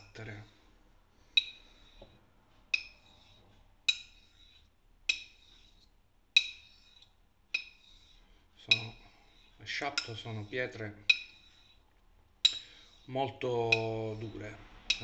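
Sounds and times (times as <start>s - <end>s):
blade ringing: 2.8s - 3.2s, 3.9s - 5.7s, 6.4s - 7.0s, 7.6s - 8.0s, 13.6s - 15.0s
razor clicking on whetstone: 13.7s - 15.0s.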